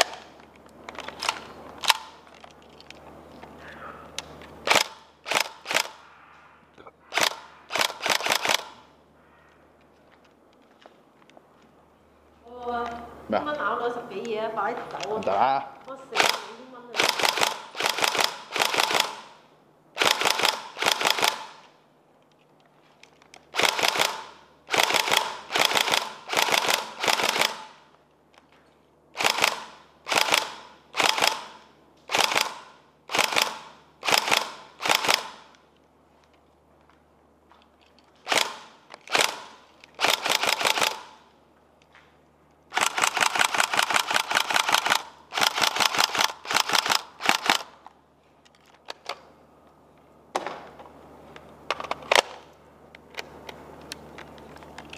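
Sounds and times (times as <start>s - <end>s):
airsoft gun firing bursts: 4.6s - 6.0s, 7.1s - 8.9s, 16.1s - 19.4s, 20.0s - 21.6s, 23.5s - 27.9s, 29.2s - 35.5s, 38.2s - 41.3s, 42.7s - 47.7s.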